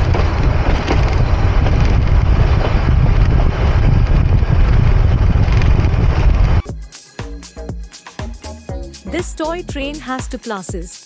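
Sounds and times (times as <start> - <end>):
wind buffeting microphone: 0.0 - 6.7.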